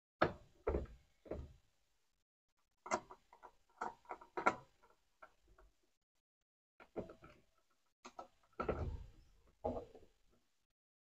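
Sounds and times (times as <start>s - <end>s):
plastic control panel knocks and clicks: 0.2s - 1.6s, 8.1s - 10.0s.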